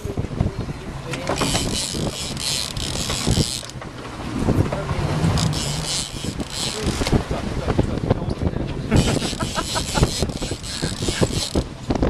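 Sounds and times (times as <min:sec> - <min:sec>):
wind buffeting microphone: 0:00.0 - 0:12.0
low rumble: 0:02.9 - 0:09.5.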